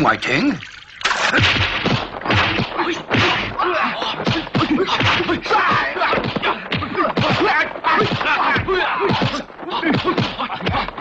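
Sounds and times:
punch and kick whacks: 0:01.2 - 0:03.6, 0:04.2 - 0:10.9
fighters shouting: 0:02.4 - 0:11.0.

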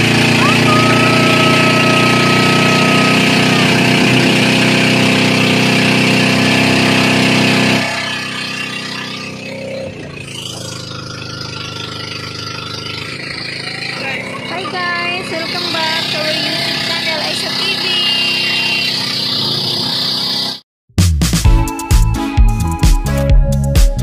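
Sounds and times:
boat engine running: 0:00.0 - 0:20.6
held high tone: 0:00.3 - 0:05.1, 0:07.6 - 0:10.7.

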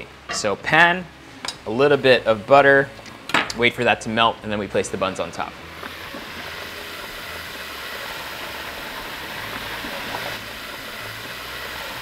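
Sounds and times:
butter sizzling in skillet: 0:04.6 - 0:12.0.

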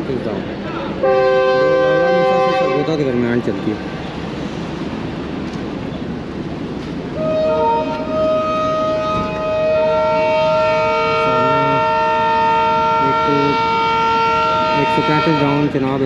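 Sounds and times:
locomotive horn chord: 0:01.0 - 0:03.1, 0:07.2 - 0:15.7.

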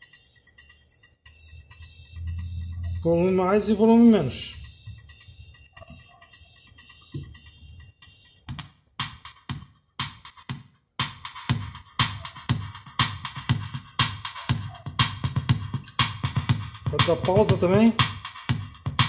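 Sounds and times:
electronic music with drum-machine beat: 0:00.0 - 0:19.0
held synth chord: 0:01.8 - 0:05.0.

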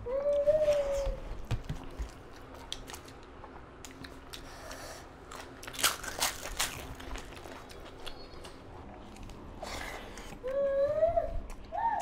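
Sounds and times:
crisp snack crunching: 0:05.2 - 0:09.4.

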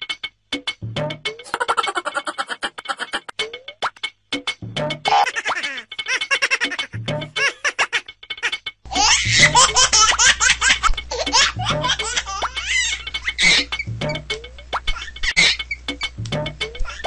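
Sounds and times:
background music: 0:00.0 - 0:17.0
baby laughing: 0:01.4 - 0:03.4, 0:05.1 - 0:13.9, 0:14.8 - 0:15.8, 0:16.7 - 0:17.0.

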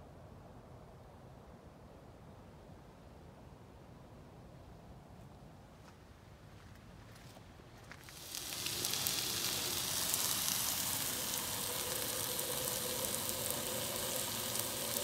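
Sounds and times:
vegetables sizzling in a frying pan: 0:08.0 - 0:15.0.

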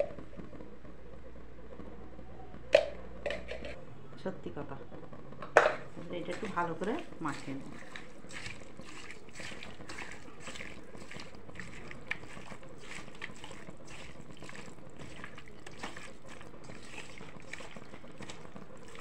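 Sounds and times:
hand squelching raw chicken: 0:06.0 - 0:19.0.

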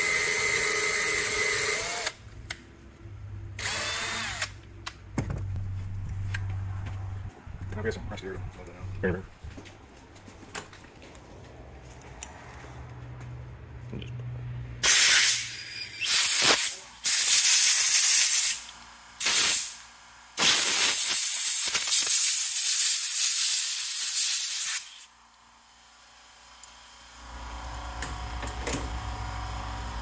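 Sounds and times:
air blow gun hissing: 0:14.8 - 0:25.1.

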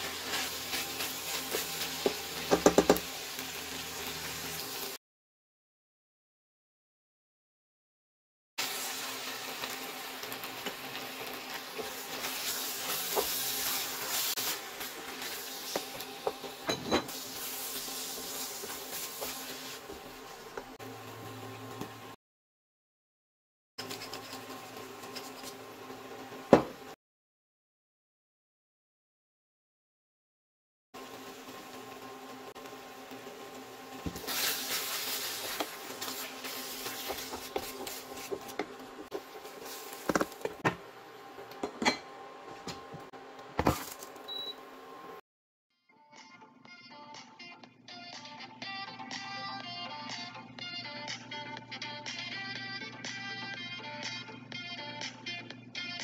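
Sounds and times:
wooden spoon stirring sauce in pan: 0:00.0 - 0:02.9, 0:34.1 - 0:40.5
wood knocking against metal pot: 0:02.5 - 0:03.0
sauce simmering hiss: 0:08.6 - 0:16.4, 0:17.1 - 0:21.4, 0:31.0 - 0:40.5
wooden spatula scraping pot: 0:34.4 - 0:40.6.

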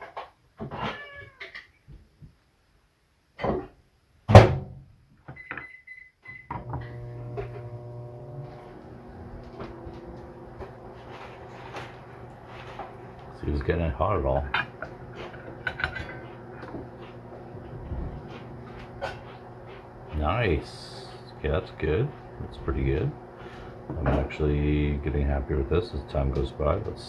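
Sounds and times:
steady low hum: 0:06.6 - 0:27.0.

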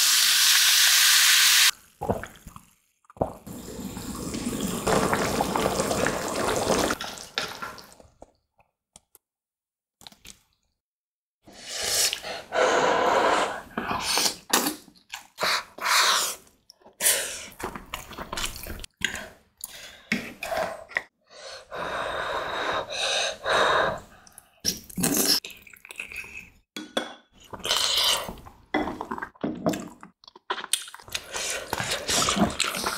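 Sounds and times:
slurping food: 0:31.1 - 0:32.9.

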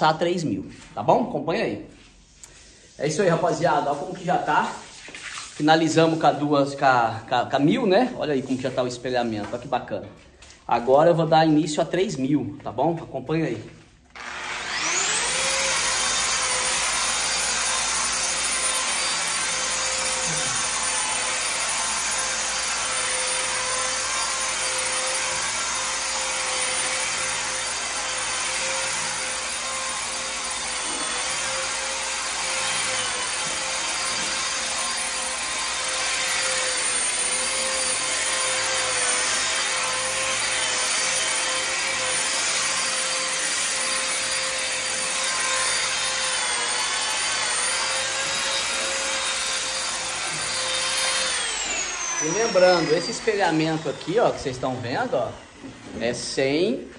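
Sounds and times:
electric sander running: 0:14.2 - 0:55.8.

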